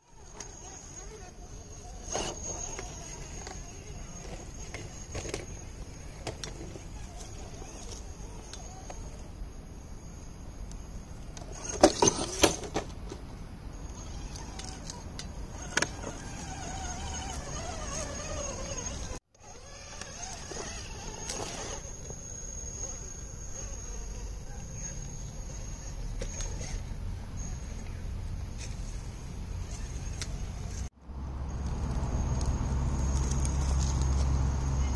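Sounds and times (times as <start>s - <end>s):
electric motor and gears whining: 0.1s - 9.4s, 13.8s - 34.9s
steady high-pitched whine: 13.5s - 34.9s.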